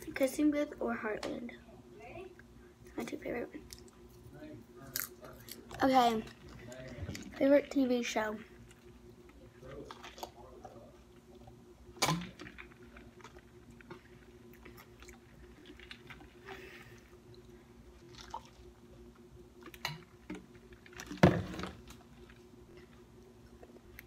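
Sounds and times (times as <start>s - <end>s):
person gulping and swallowing: 18.0s - 18.7s.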